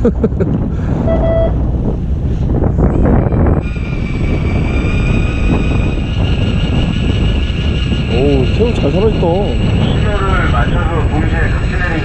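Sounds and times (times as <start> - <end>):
low rumble: 0.0 - 12.0
wind on microphone: 0.0 - 12.0
short beep: 1.1 - 1.6.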